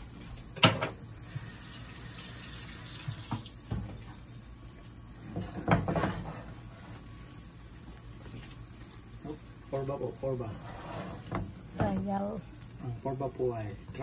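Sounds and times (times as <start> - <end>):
omelette sizzling in oil: 0.0 - 14.0
spatula scraping pan: 5.3 - 7.0, 10.4 - 12.0.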